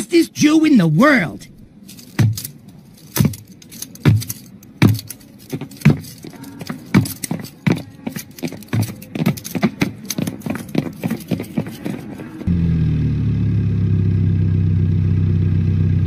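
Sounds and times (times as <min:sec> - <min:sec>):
handcuff chain jangling: 0:01.5 - 0:12.5.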